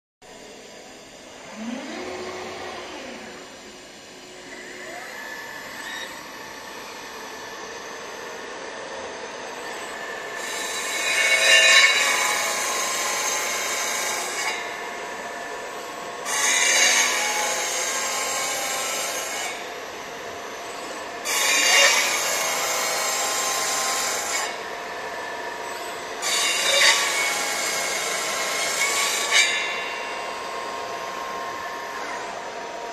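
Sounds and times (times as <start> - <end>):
spindle whine: 0.3 - 10.4.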